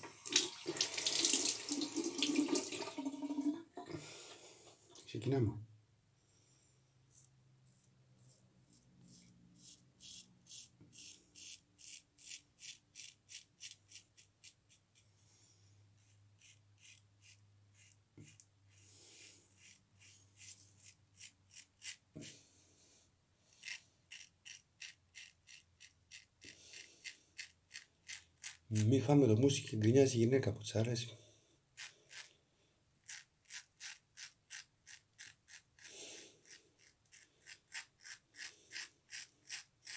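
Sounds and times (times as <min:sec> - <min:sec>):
razor scraping stubble: 0:07.1 - 0:15.0, 0:16.0 - 0:22.4, 0:23.6 - 0:29.2, 0:31.8 - 0:32.3, 0:33.0 - 0:39.9.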